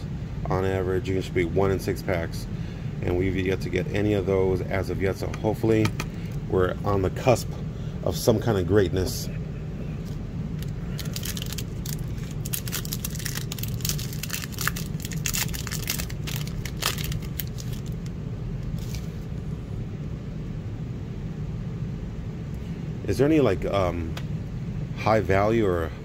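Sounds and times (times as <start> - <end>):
low hum: 0.0 - 26.0
foil wrapper crinkling and tearing: 10.6 - 19.2.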